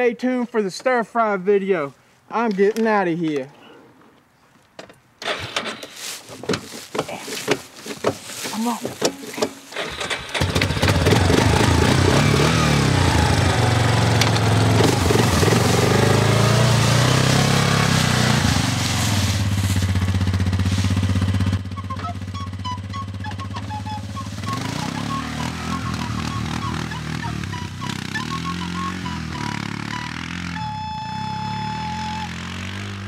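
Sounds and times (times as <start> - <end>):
quad bike engine revving: 8.5 - 33.0
music with short notes: 21.7 - 32.5.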